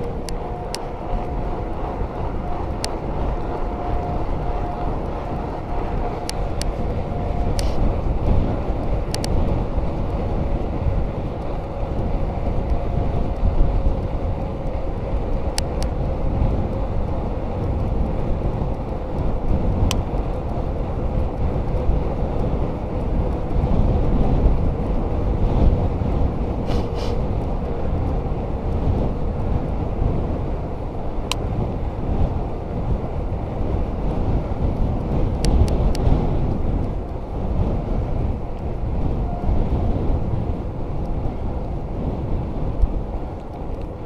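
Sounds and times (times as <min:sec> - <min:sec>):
sharp ticks: 0:00.0 - 0:25.0, 0:33.6 - 0:38.9, 0:42.7 - 0:44.0
tyres rolling on asphalt: 0:00.0 - 0:44.0
wind buffeting microphone: 0:00.0 - 0:44.0.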